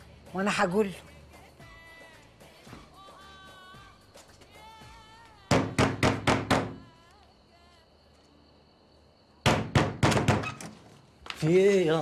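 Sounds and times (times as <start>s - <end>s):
knocking on wooden door: 5.5s - 6.8s, 9.5s - 10.5s.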